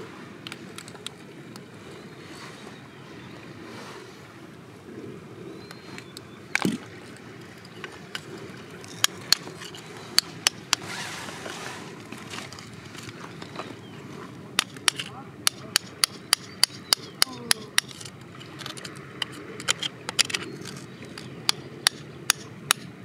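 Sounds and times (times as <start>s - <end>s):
chisel tapping on rock: 14.6s - 22.9s.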